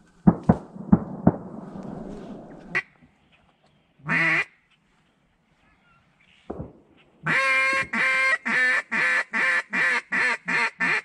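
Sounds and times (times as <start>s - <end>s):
duck quack: 7.2s - 11.0s.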